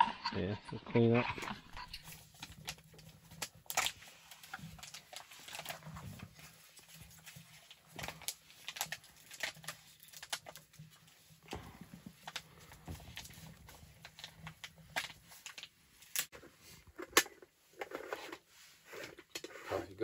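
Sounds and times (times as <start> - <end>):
wood fire crackling and popping: 1.4 - 6.0, 7.9 - 10.6.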